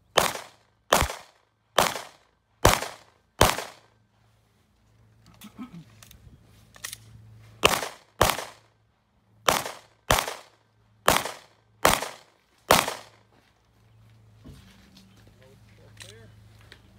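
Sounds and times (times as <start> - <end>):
pistol shots with echo: 0.1 - 3.9, 7.6 - 8.7, 9.5 - 13.2.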